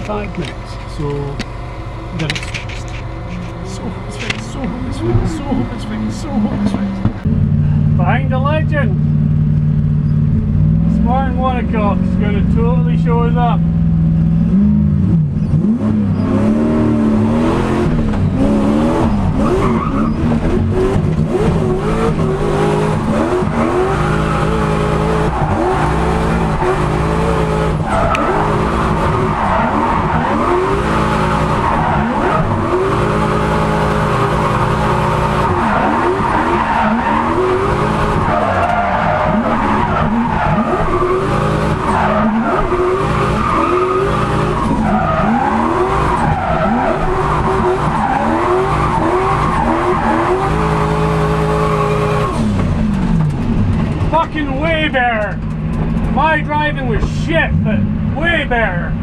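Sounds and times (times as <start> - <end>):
car engine revving: 0.0 - 58.7
tyres squealing and skidding: 15.3 - 52.6.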